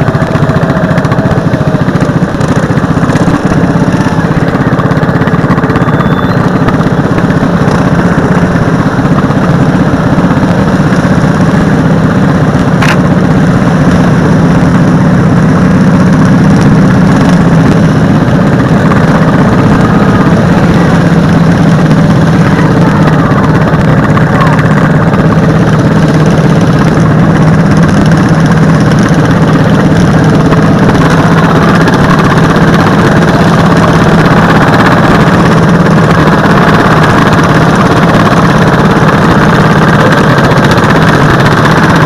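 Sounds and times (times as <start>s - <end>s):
lawn mower engine running hard: 0.0s - 42.0s.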